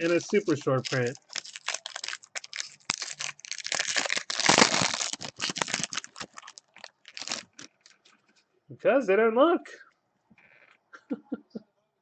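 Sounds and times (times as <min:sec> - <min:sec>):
foil wrapper crinkling and tearing: 0:00.0 - 0:08.1.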